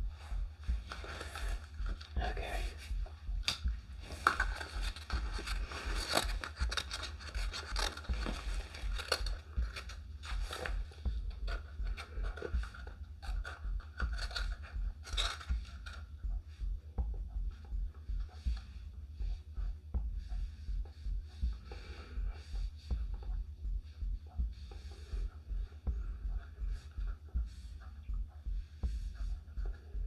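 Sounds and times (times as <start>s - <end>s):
low hum: 0.0s - 30.0s
scraping handling sounds: 3.4s - 12.6s.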